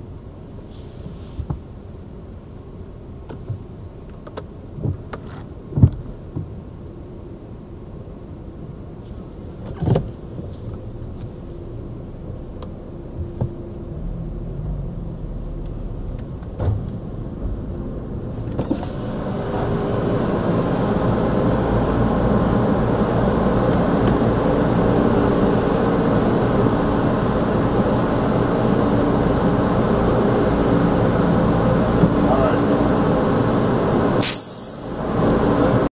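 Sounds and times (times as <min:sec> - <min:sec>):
low rumble with knocks: 0:09.6 - 0:18.8, 0:31.8 - 0:32.3
machine hum: 0:11.6 - 0:34.2
water spray hitting car: 0:34.2 - 0:35.0.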